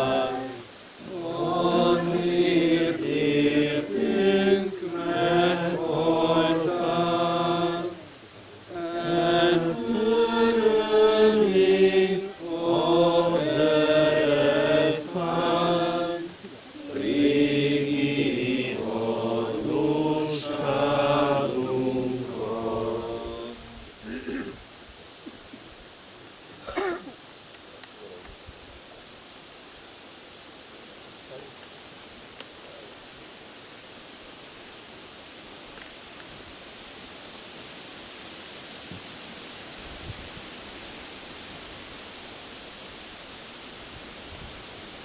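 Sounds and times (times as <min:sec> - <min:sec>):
group singing a hymn: 0:00.0 - 0:24.4.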